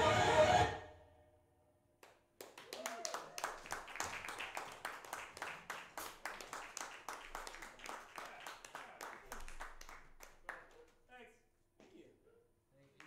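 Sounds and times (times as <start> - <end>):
small audience clapping: 2.0 - 11.3, 12.8 - 13.0.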